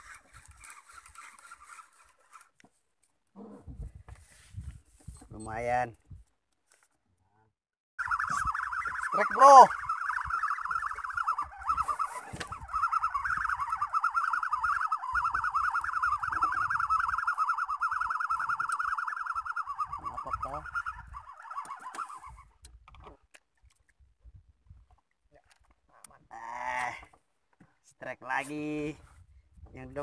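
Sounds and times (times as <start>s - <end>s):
fishing reel whirring: 0.0s - 2.5s, 8.0s - 22.6s.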